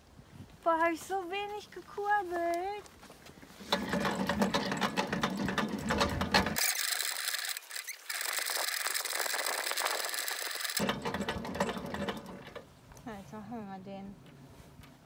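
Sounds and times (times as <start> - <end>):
hand crank generator whirring: 3.6 - 12.6.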